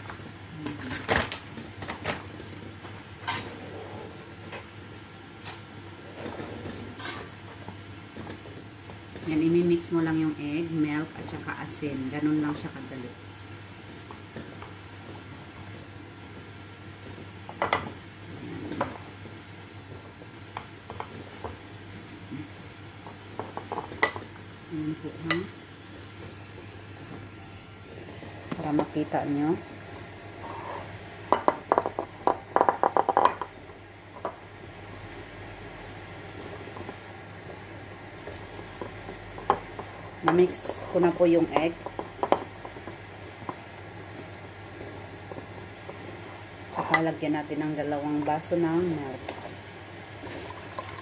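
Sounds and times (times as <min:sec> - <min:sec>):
kitchen knocks and clatters: 0:31.3 - 0:33.6.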